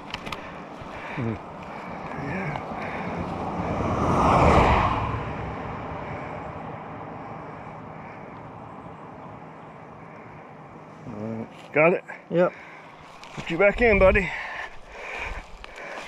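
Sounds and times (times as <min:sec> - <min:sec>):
vehicle driving past: 0:01.8 - 0:11.1.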